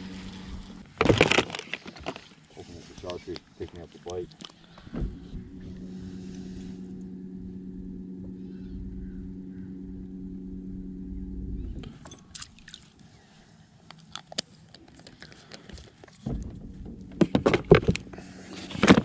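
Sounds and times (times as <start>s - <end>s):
electric motor humming: 0.0s - 0.8s, 4.7s - 12.6s.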